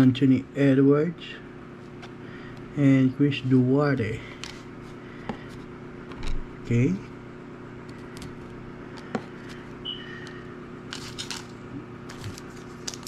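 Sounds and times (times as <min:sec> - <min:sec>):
faint hum: 0:00.0 - 0:13.0
cards rustling: 0:10.9 - 0:13.0.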